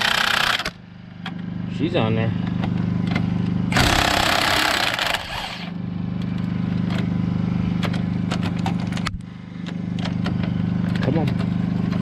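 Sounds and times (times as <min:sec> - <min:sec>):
low engine-like hum: 0:00.0 - 0:12.0.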